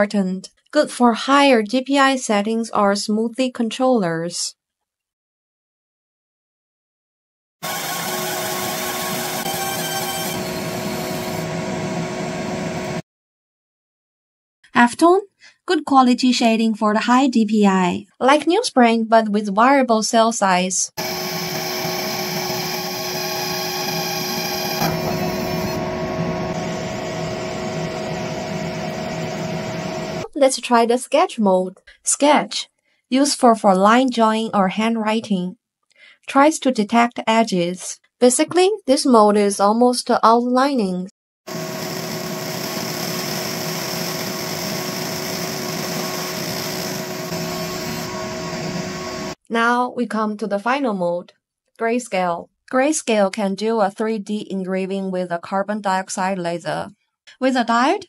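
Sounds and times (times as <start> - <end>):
laser engraver buzz and hiss: 7.7 - 11.5, 21.0 - 30.2, 41.5 - 49.4
steady hum tones: 23.9 - 30.2.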